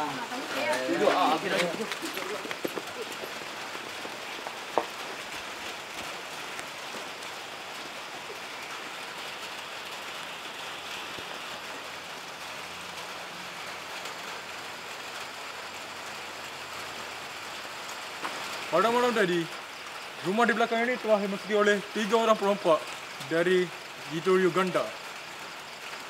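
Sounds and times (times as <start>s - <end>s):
background hiss: 0.0s - 26.0s.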